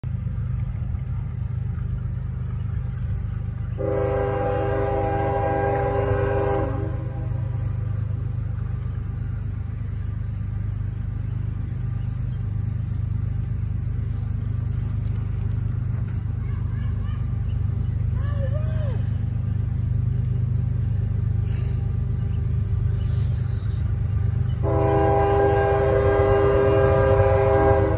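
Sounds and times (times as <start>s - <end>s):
low rumble: 0.0s - 27.9s
locomotive air horn blast: 3.8s - 7.6s, 24.6s - 27.9s.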